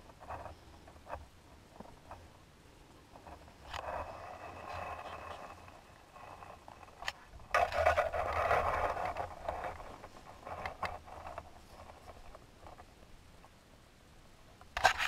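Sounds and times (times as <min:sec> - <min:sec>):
gravel being scraped: 0:03.2 - 0:12.9.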